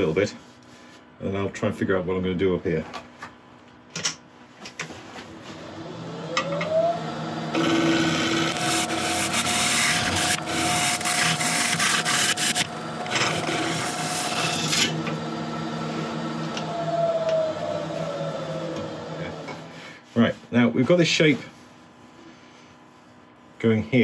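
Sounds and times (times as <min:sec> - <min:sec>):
lathe motor whine: 0:05.3 - 0:19.8.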